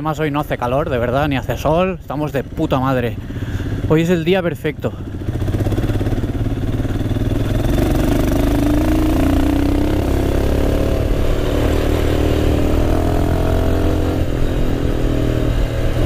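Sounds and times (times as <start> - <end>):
motorcycle engine revving: 5.0 - 16.0.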